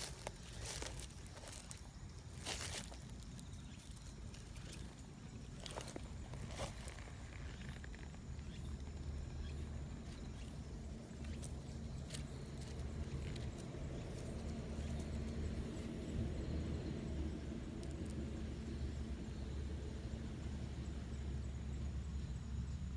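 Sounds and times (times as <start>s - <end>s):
fur and dry grass rustling: 0.0s - 8.1s.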